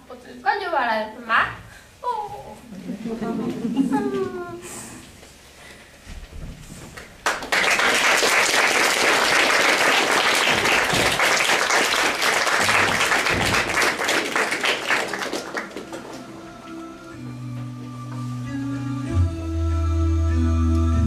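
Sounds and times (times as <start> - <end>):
audience applauding: 7.1 - 16.8.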